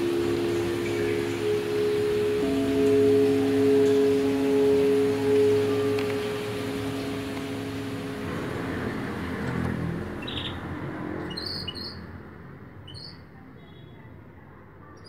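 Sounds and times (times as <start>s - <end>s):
crystal singing bowls ringing: 0.0s - 9.5s.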